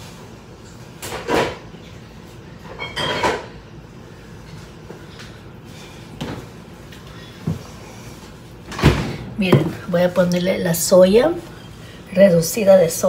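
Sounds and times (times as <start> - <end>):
cupboard doors opening and closing: 8.7 - 9.8.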